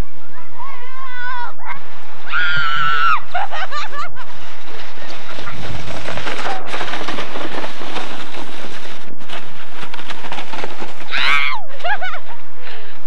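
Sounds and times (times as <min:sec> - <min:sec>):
loud steady rushing noise: 0:00.0 - 0:13.0
children shrieking and shouting: 0:00.3 - 0:03.4, 0:11.1 - 0:11.8.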